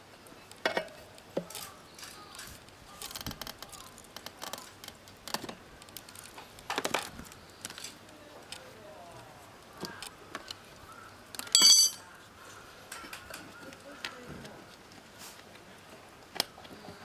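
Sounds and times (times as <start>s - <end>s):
tire levers clinking on wheel rim: 11.5s - 12.0s.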